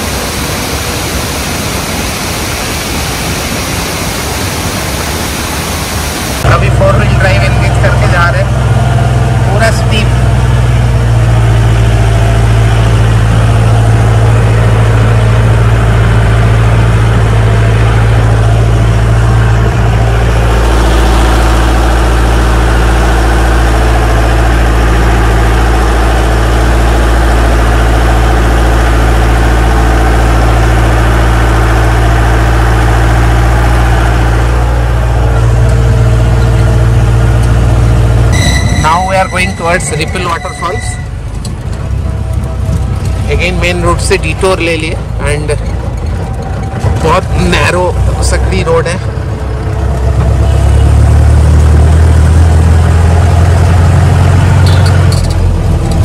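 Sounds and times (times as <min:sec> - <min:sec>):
car engine running: 0:06.4 - 0:56.0.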